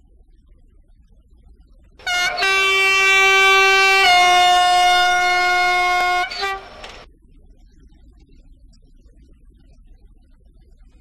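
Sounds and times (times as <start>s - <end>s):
model locomotive horn blast: 2.0s - 7.0s.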